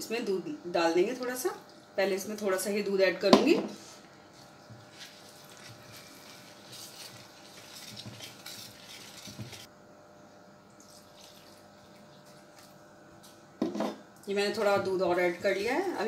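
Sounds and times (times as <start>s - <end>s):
whisk scraping in bowl: 4.8s - 9.7s.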